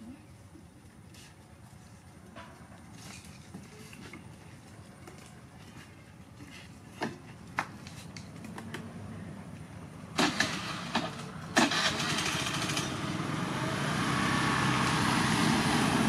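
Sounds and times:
scooter engine running: 0:10.2 - 0:16.0.

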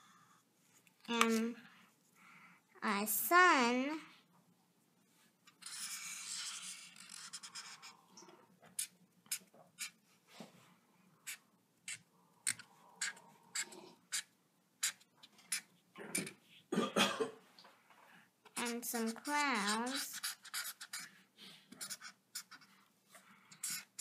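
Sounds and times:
marker scratching on paper: 0:05.5 - 0:08.0, 0:08.7 - 0:10.0, 0:11.2 - 0:16.6, 0:18.5 - 0:24.0.

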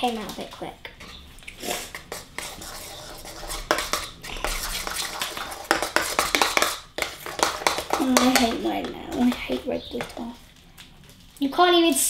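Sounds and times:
spoon clinking and scraping bowl: 0:01.9 - 0:10.4.

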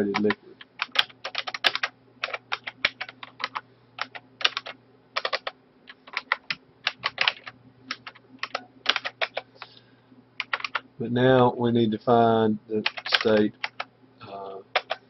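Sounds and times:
keyboard typing: 0:00.0 - 0:09.8, 0:10.4 - 0:10.8, 0:12.8 - 0:13.9, 0:14.7 - 0:15.0
faint low hum: 0:00.0 - 0:15.0.

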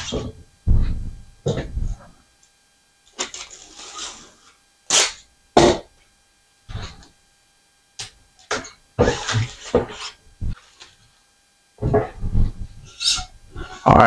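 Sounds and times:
packing tape pulled off roll: 0:03.1 - 0:05.2
tape being torn: 0:04.9 - 0:05.2.

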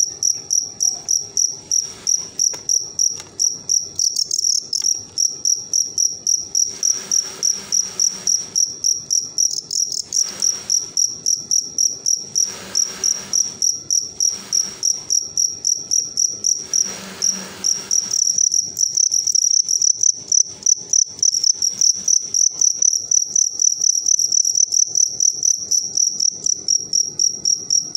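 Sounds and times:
crickets chirping: 0:00.0 - 0:27.9
rustling noise: 0:01.7 - 0:03.4, 0:06.7 - 0:08.6, 0:10.0 - 0:11.0, 0:12.4 - 0:15.1, 0:16.6 - 0:18.4.

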